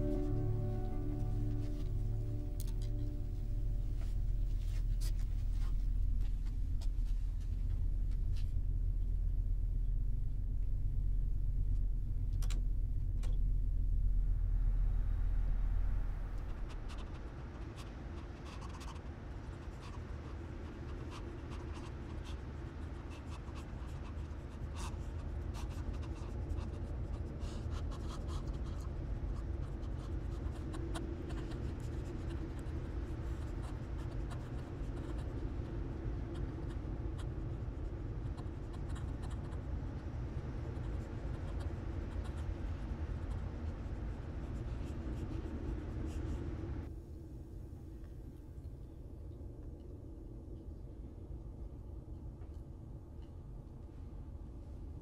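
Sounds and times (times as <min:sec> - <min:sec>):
low droning rumble: 0:00.0 - 0:18.2.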